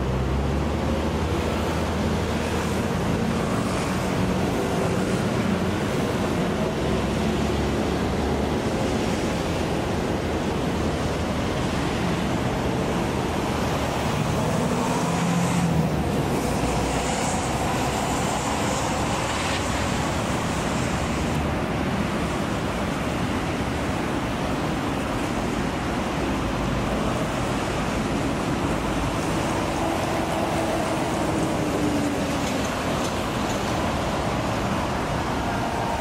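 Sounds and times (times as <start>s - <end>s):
harbourside rumble and hiss: 0.0s - 36.0s.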